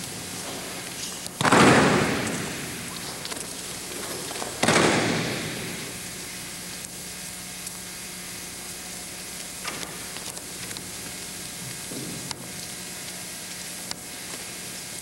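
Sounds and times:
low hum and hiss: 0.0s - 15.0s
body slamming onto mat: 1.4s - 2.9s, 4.0s - 5.8s.

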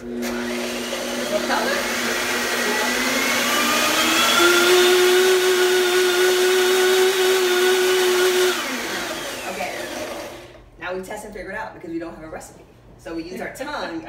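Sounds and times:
blender motor running: 0.0s - 10.6s.

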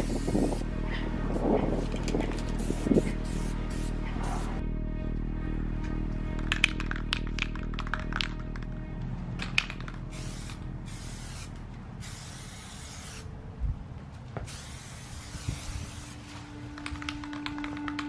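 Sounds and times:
aerosol spray can hissing: 1.8s - 4.6s, 10.1s - 13.2s, 14.5s - 16.4s.

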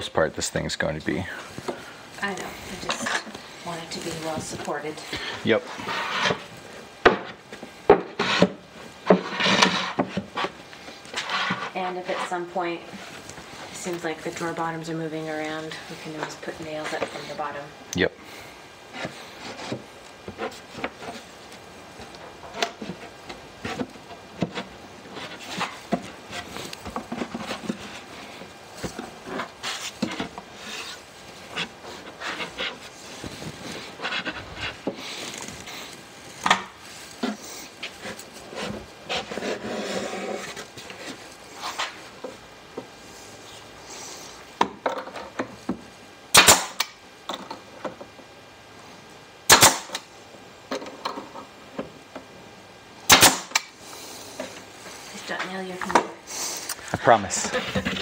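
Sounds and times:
wooden parts knocking and rubbing: 5.7s - 13.3s, 18.8s - 43.0s, 57.0s - 58.0s
nail gun firing: 46.3s - 46.9s, 49.5s - 50.0s, 53.1s - 53.7s.

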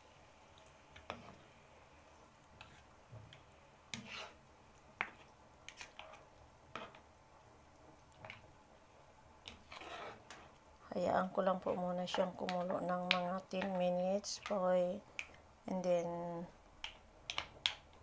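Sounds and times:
spatula scraping frying pan: 1.0s - 1.4s, 3.9s - 4.4s, 5.0s - 7.0s, 9.5s - 10.6s.

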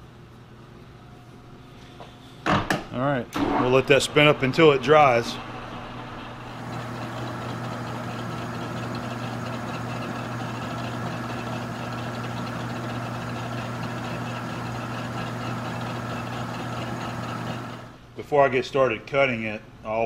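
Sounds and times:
metal lathe running: 3.4s - 18.0s.

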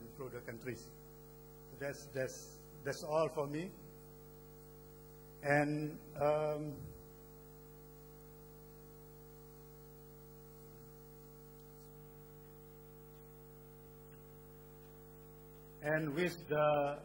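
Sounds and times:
electrical hum: 0.0s - 17.0s
man's voice: 15.8s - 17.0s.

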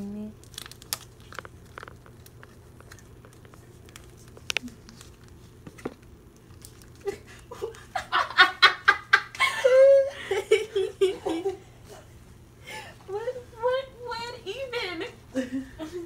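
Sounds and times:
laughter: 7.0s - 11.7s, 15.3s - 16.0s.

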